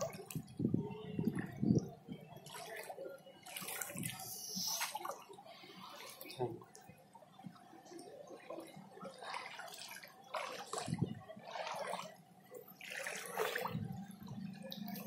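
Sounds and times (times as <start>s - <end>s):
footsteps splashing through water: 8.4s - 12.1s, 12.8s - 13.8s.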